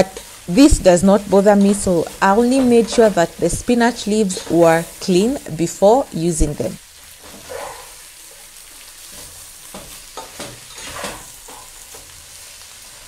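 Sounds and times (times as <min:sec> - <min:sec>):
vegetables sizzling in hot oil: 0:00.0 - 0:13.0
spatula scraping and knocking: 0:09.1 - 0:12.1.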